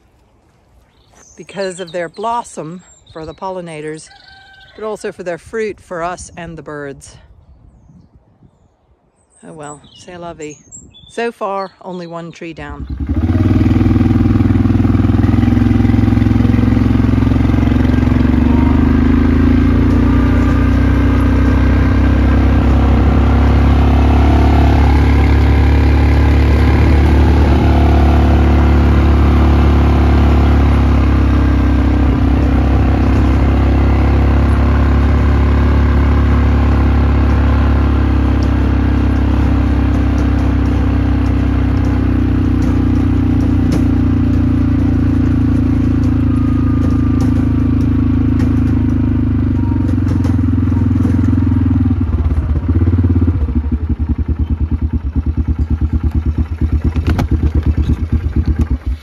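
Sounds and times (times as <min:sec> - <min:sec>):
quad bike engine running: 0:12.7 - 0:59.0.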